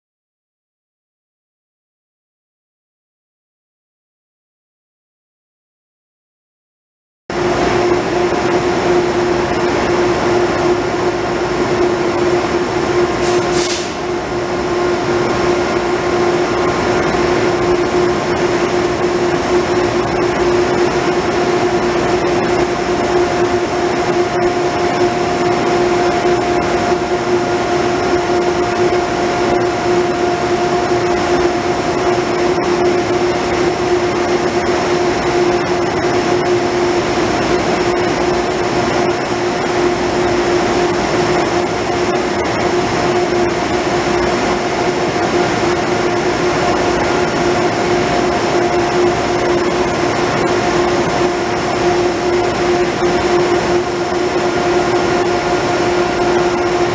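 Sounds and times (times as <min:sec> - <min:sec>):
machinery drone: 0:07.3 - 0:56.9
short hiss: 0:13.2 - 0:14.0.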